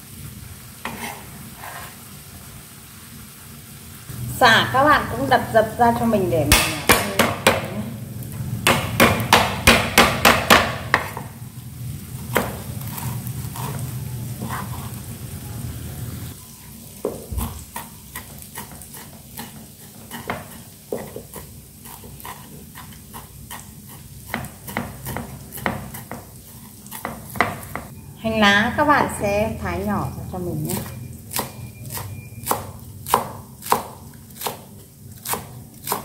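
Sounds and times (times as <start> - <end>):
cleaver chopping on board: 8.6 - 11.3.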